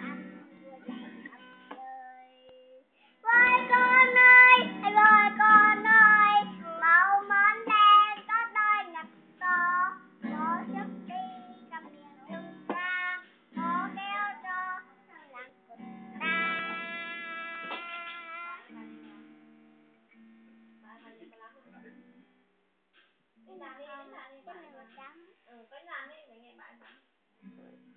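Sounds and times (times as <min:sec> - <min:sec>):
girl singing: 0:00.0 - 0:19.2
acoustic guitar strumming: 0:00.0 - 0:22.4.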